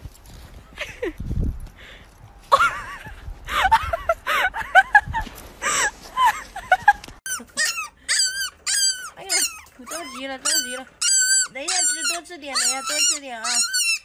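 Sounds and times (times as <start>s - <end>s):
dog whining and yelping: 7.3s - 14.0s
puppy whining: 7.3s - 14.0s.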